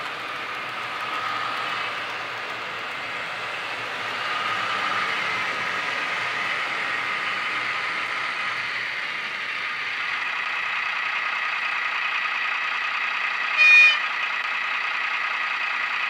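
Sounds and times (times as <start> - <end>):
diesel engine sound from small speaker: 0.0 - 16.0
horn toot: 13.6 - 14.1.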